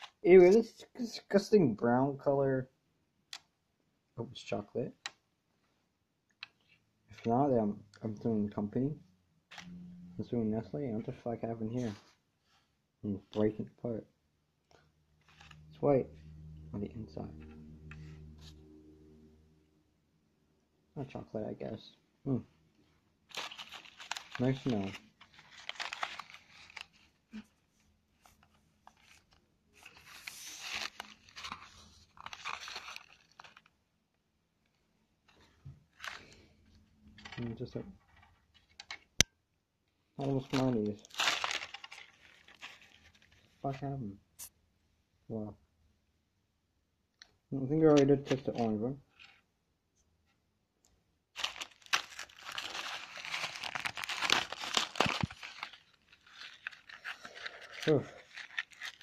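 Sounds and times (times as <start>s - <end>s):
paper packaging crinkling and tearing: 15.2s - 16.6s, 23.3s - 33.7s, 35.9s - 36.5s, 40.2s - 43.6s, 51.4s - 59.0s
candy crunching while chewed: 51.4s - 59.0s.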